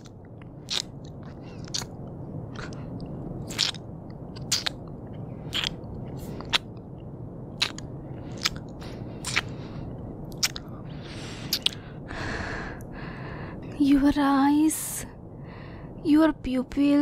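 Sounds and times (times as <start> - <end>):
wet lip smacks and kisses: 0.0 - 2.0, 3.4 - 4.8, 5.5 - 6.7, 7.6 - 9.5, 10.3 - 10.7, 11.5 - 11.8
breathy exhale: 10.7 - 13.7, 15.3 - 16.0.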